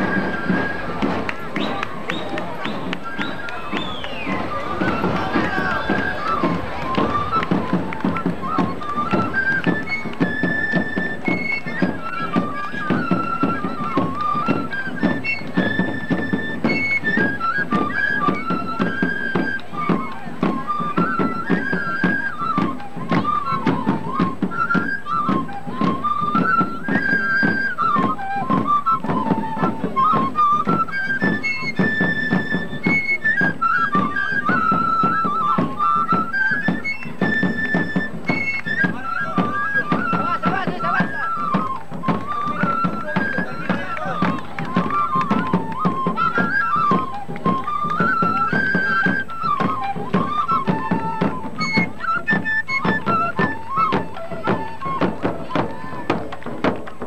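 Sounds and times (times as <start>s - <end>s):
high flute melody: 0.0s - 57.0s
fast steady drum beat: 39.0s - 46.1s.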